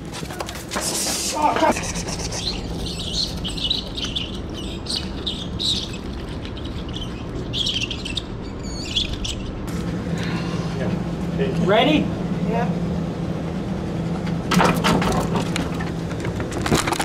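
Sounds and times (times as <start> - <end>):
steady low hum: 0.0 - 17.0
high-pitched animal squeaks: 1.7 - 9.7.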